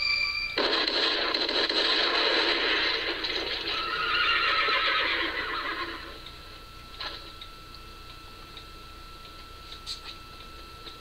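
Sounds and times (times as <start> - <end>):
horse whinnying through tv speaker: 3.7 - 6.2.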